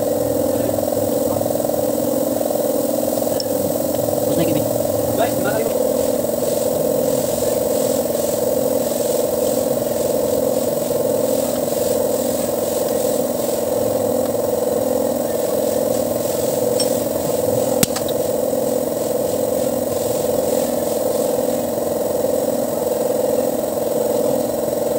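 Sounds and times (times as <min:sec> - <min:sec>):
machine drone: 0:00.0 - 0:24.9.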